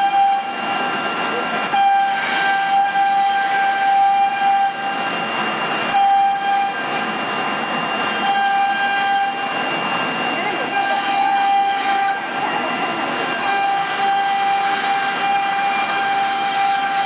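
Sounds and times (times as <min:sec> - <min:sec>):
router spindle whine: 0:00.0 - 0:17.0.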